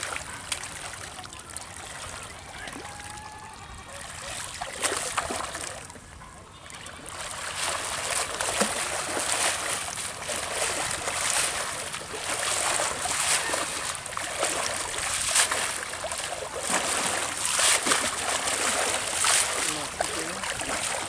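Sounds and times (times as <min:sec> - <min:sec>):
net splashing in water: 0:06.9 - 0:21.0.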